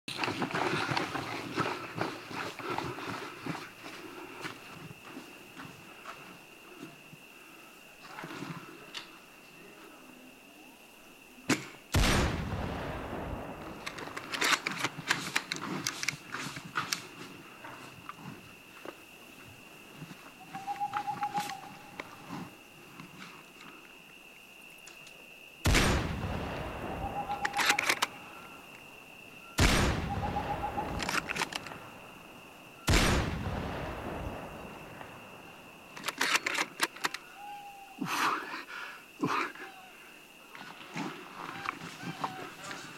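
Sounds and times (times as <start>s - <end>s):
rifle shot with echo: 12.0s - 13.9s, 25.7s - 27.8s, 29.6s - 31.3s, 32.9s - 34.5s
sharp clicks: 27.3s - 28.1s, 30.8s - 31.8s, 35.9s - 37.2s
quick sharp cracks and clicks: 36.0s - 37.2s.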